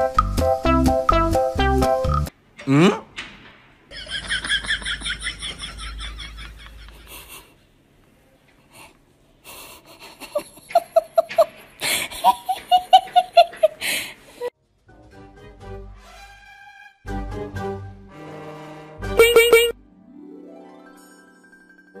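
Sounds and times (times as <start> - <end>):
people laughing: 3.9 - 7.6, 9.7 - 13.8.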